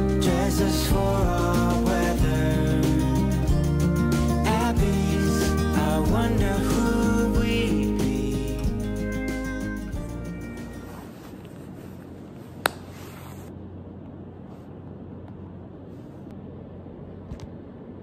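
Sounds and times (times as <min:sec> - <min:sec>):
music track: 0:00.0 - 0:11.1
low room noise: 0:10.0 - 0:18.0
sharp tap: 0:12.6 - 0:12.9.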